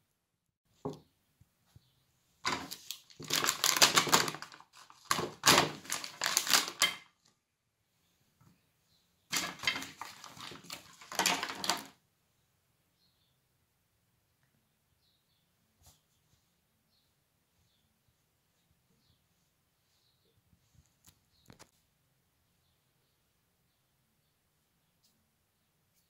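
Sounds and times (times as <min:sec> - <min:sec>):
plastic packaging crinkling: 0:02.4 - 0:07.1, 0:09.3 - 0:12.0.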